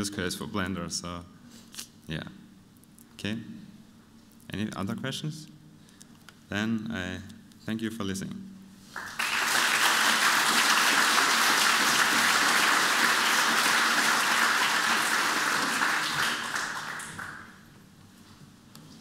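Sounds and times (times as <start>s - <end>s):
audience applauding: 9.0s - 17.6s.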